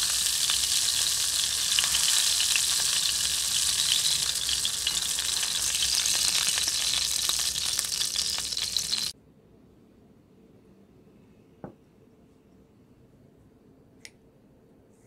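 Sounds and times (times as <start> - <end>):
meat sizzling in frying pan: 0.0 - 9.1.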